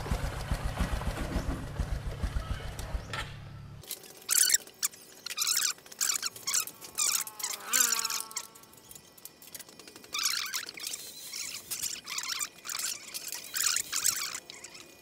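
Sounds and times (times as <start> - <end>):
motorcycle engine idling: 0.0 - 3.8.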